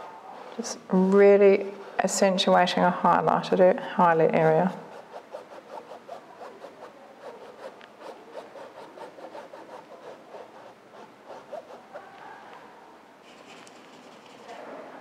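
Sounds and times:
paintbrush scrubbing on canvas: 0:04.4 - 0:12.2.

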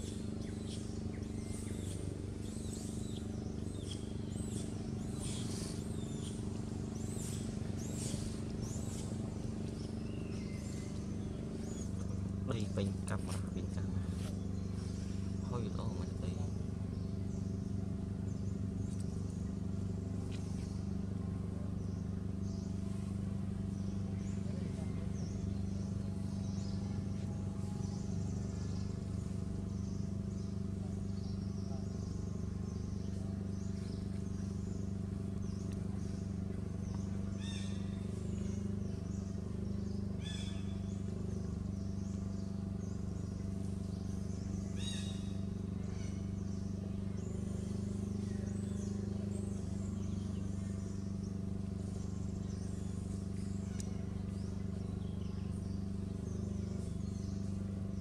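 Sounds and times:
high chirping calls: 0:00.0 - 0:17.8
low mechanical hum: 0:00.0 - 0:58.0.

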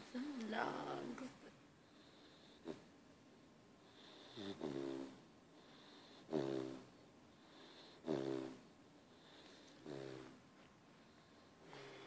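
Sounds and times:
puppy snoring: 0:01.8 - 0:02.9, 0:03.8 - 0:10.4.

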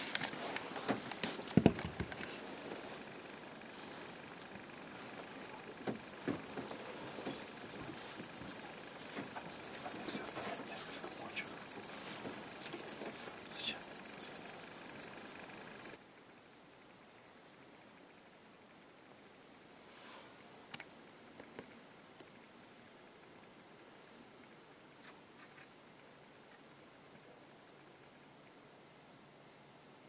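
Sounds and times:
insect trilling: 0:00.2 - 0:20.9.

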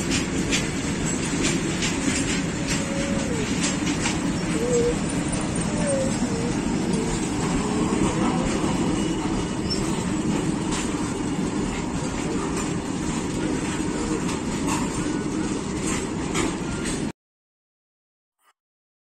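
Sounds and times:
train wheels rumbling on rail: 0:00.0 - 0:17.1
wheels clicking over rail joints: 0:00.0 - 0:17.1
faint wheel squeal: 0:08.0 - 0:10.1.

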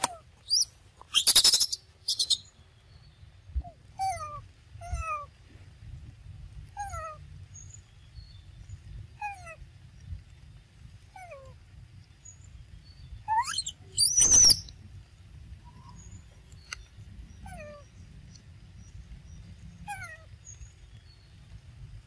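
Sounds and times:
shrill animal squeal: 0:13.3 - 0:14.6.

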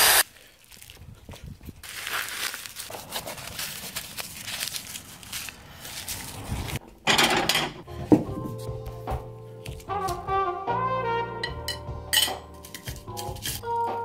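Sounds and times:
plastic packet crinkling: 0:00.2 - 0:06.8.

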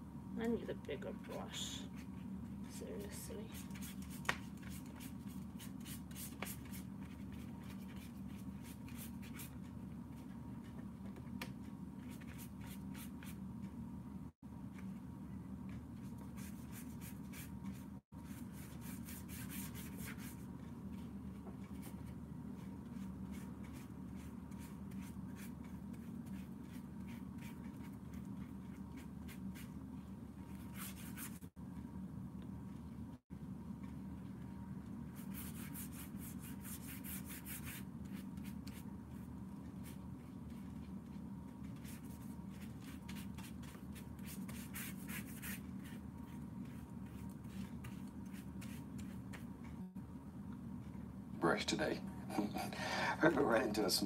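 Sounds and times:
paintbrush scratching on paper: 0:16.0 - 0:29.8, 0:30.5 - 0:31.5, 0:35.2 - 0:49.5.

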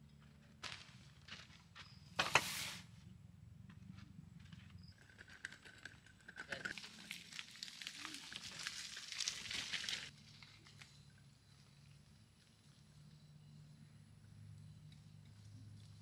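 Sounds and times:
wagon wheels crunching on dirt: 0:06.5 - 0:13.3.

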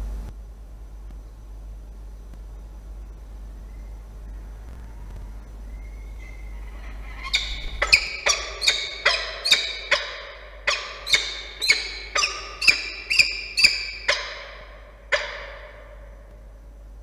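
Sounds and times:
falcon sharp ringing calls: 0:05.8 - 0:16.3.

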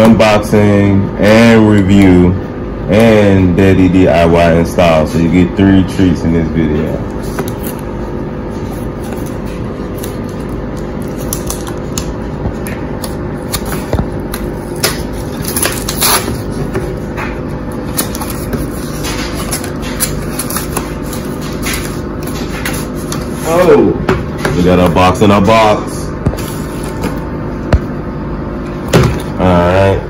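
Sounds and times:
low background hum: 0:00.0 - 0:30.0
cardboard scraping and tearing: 0:15.1 - 0:16.6.

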